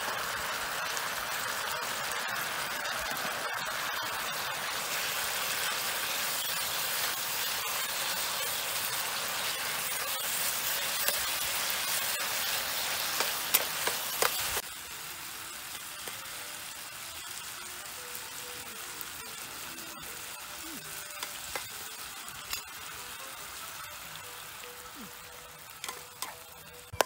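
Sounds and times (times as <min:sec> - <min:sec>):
food sizzling in a frying pan: 0:00.0 - 0:27.0
metal spatula clicking on pan: 0:25.8 - 0:26.4.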